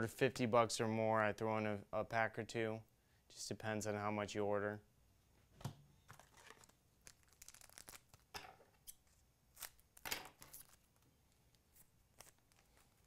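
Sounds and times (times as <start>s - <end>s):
cards being handled: 6.0s - 8.3s, 8.9s - 13.0s
foil wrapper crinkling and tearing: 6.1s - 8.3s, 9.5s - 13.0s.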